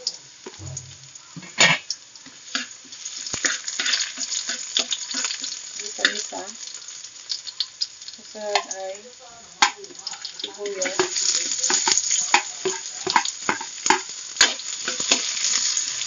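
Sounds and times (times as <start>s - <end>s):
garlic sizzling in hot oil: 0.0s - 16.0s
spatula scraping and tapping wok: 0.5s - 6.9s, 9.6s - 16.0s.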